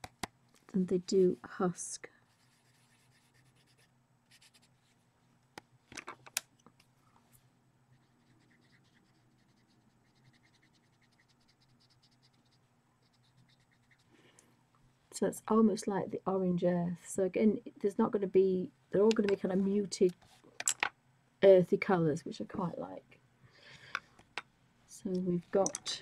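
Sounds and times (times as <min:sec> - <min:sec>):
pencil scratching on paper: 0:07.9 - 0:14.1.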